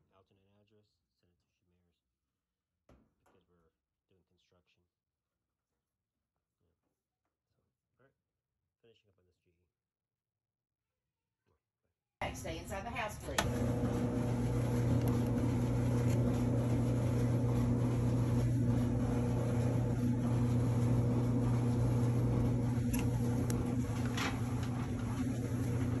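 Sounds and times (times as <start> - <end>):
clothes dryer humming: 12.2 - 26.0.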